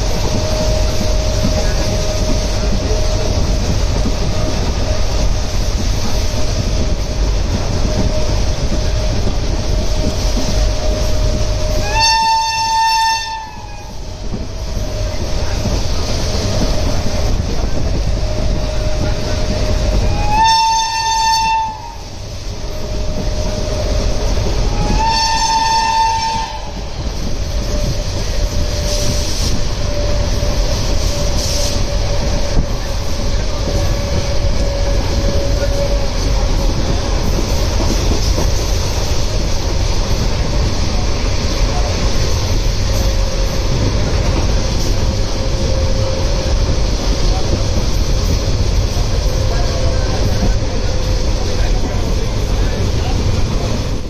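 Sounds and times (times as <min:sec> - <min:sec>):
train wheels rumbling on rails: 0:00.0 - 0:54.0
locomotive horn blasts: 0:11.6 - 0:14.0, 0:20.1 - 0:22.1, 0:24.8 - 0:26.8.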